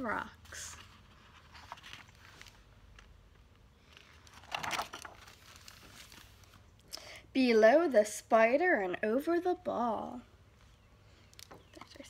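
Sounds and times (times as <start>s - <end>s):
book page turning: 0.5s - 6.7s
paper handling sounds: 0.5s - 6.8s.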